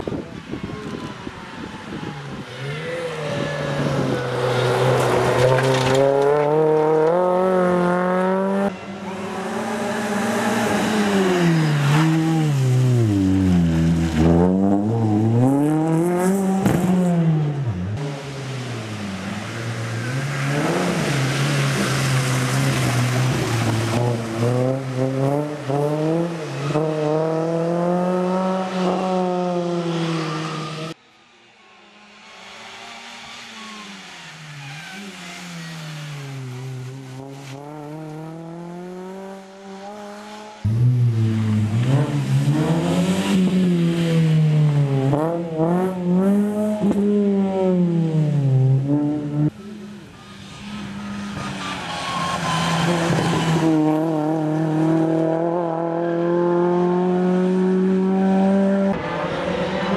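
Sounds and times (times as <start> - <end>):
rally car engine revving hard: 35.8 - 49.6, 52.4 - 59.9.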